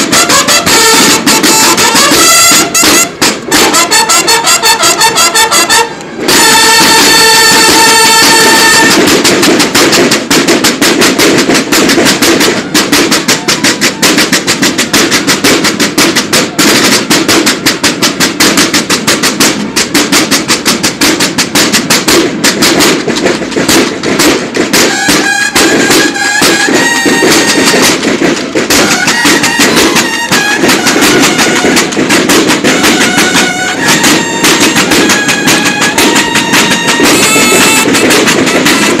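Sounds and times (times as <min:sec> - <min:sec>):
held bugle chord: 0:00.0 - 0:09.4, 0:24.8 - 0:39.0
rapid field drum cadence: 0:00.0 - 0:39.0.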